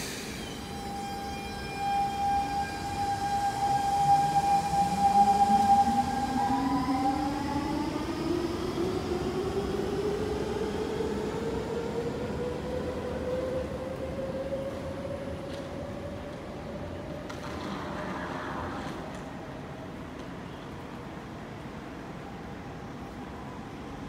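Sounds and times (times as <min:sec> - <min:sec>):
high steady tone: 0:00.1 - 0:07.4.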